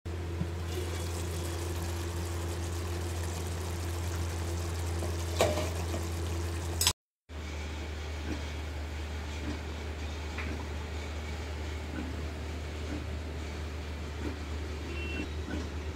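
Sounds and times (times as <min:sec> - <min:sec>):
steady low hum: 0:00.1 - 0:06.9
curry bubbling in a pan: 0:00.4 - 0:06.9.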